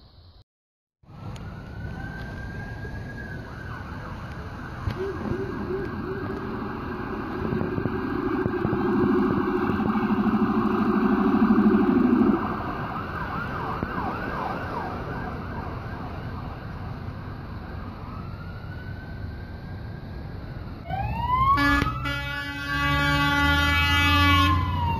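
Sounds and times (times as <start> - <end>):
emergency siren wailing: 1.1 - 24.9
loud low blaring tone: 4.9 - 14.1.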